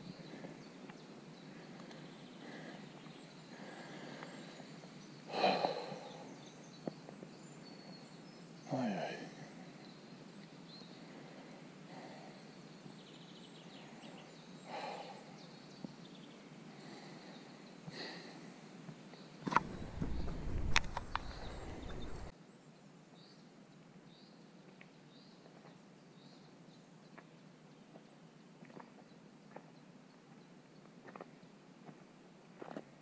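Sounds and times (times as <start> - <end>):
low outdoor background: 0.0 - 33.0
heavy breathing exhales: 1.6 - 6.4
voiced sigh: 5.3 - 6.4.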